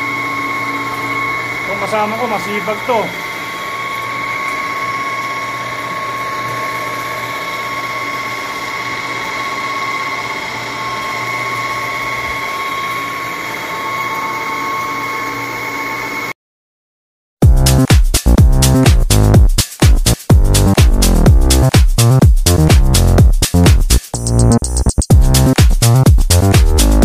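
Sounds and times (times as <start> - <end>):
pipe threading machine droning: 0.0 - 16.4.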